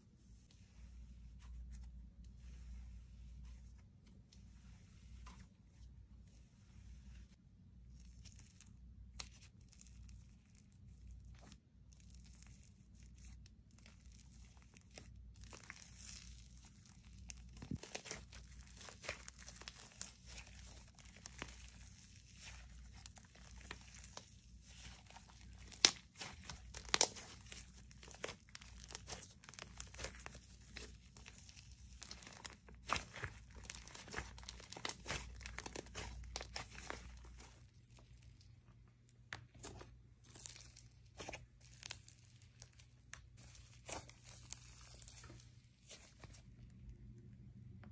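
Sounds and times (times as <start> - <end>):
slime crackling and popping: 8.0 - 38.4.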